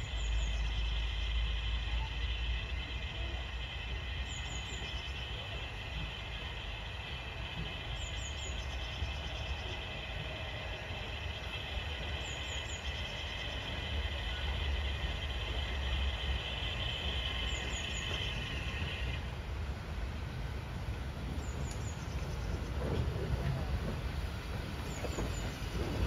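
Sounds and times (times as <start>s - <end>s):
high-pitched whine: 0.0s - 19.8s
train rumble: 0.0s - 26.0s.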